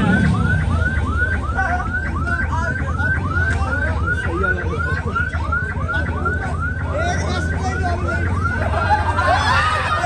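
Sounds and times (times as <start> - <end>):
electronic siren horns yelping: 0.0 - 10.0.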